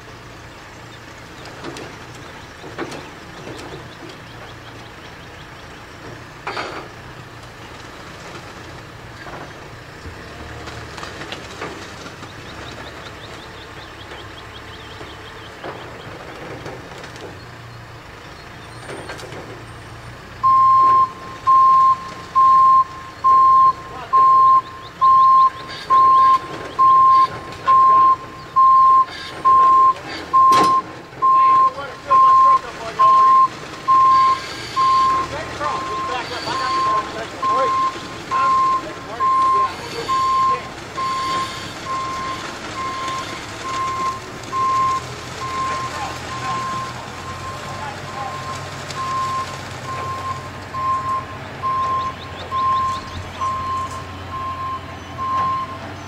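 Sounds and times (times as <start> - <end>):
forklift engine running: 0.0 - 56.0
knocks and clanks from load: 1.3 - 4.7, 6.0 - 14.3, 14.9 - 17.5, 18.6 - 19.9, 25.6 - 48.9
backup alarm beeping: 20.4 - 55.9.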